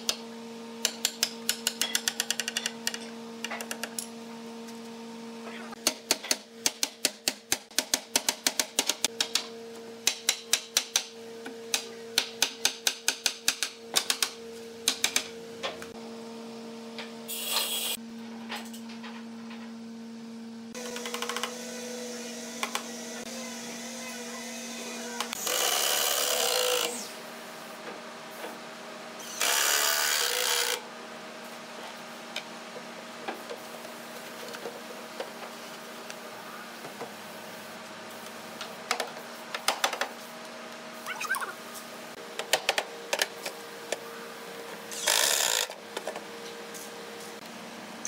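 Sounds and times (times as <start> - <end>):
cordless drill driving screws: 44.9 - 45.7.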